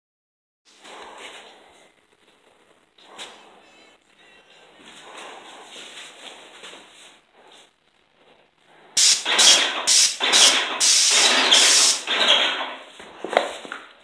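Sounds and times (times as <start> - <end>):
paint spray gun hissing: 9.0 - 12.2.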